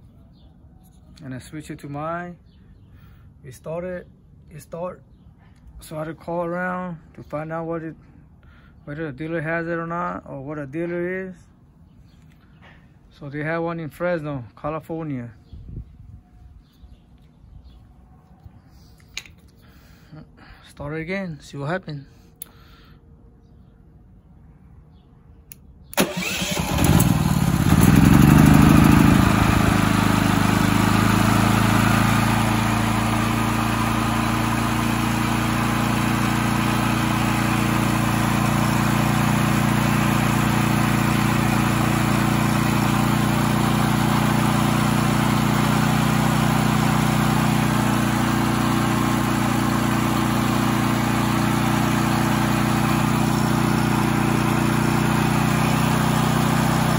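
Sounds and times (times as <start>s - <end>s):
generator engine starting and running: 25.5s - 56.9s.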